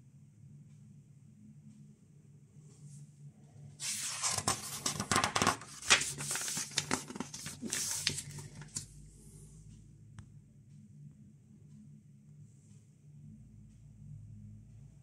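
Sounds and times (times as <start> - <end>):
paper pages rustling: 3.8 - 8.9.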